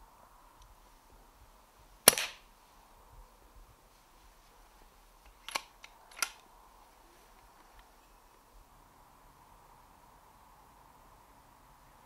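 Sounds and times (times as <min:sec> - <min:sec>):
air rifle shot crack: 0:02.0 - 0:02.5
metallic clicks of rifle action: 0:02.1 - 0:02.4, 0:05.2 - 0:06.5.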